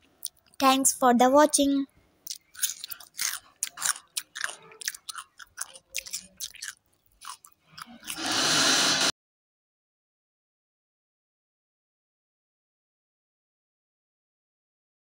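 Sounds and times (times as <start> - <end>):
wet chewing with mouth clicks: 0.2 - 0.6, 2.2 - 8.3
loud rushing noise: 8.2 - 9.1.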